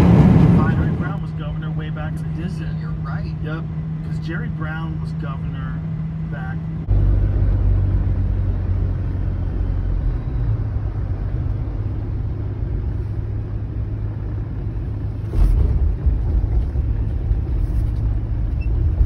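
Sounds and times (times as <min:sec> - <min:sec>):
car engine and tyre noise: 0:00.0 - 0:19.0
short low rumble: 0:06.0 - 0:19.0.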